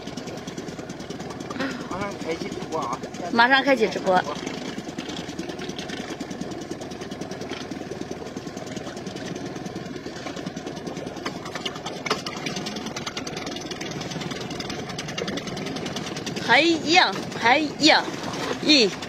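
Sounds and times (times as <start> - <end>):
small engine idling: 0.0 - 19.0.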